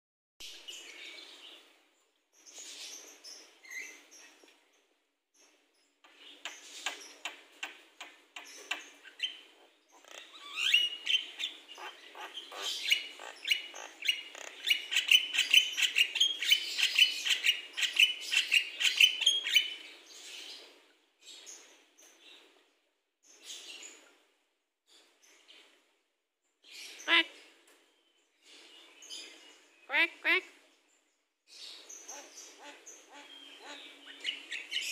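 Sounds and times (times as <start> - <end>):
myna bird singing: 5.8 - 20.6, 28.0 - 34.9.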